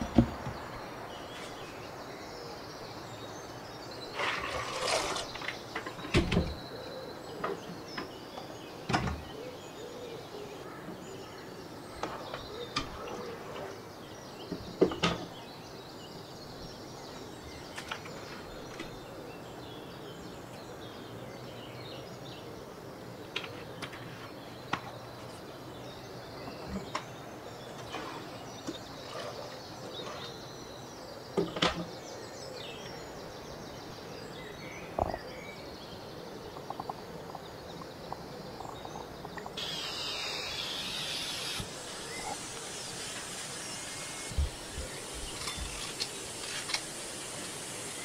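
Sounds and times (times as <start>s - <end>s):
steady hiss: 35.7s - 48.0s.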